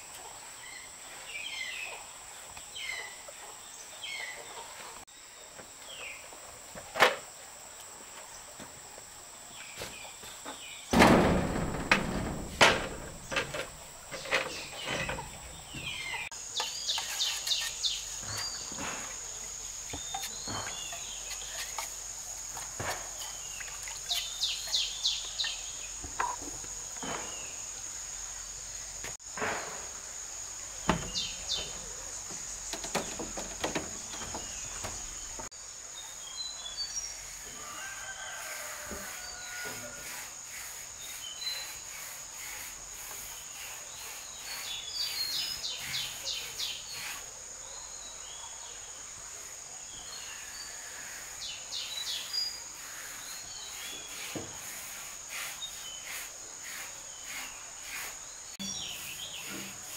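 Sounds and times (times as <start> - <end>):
insects droning: 0.0 - 59.9
knocks: 10.9 - 16.0, 30.9 - 35.5
birds chirping rapidly: 30.7 - 35.5.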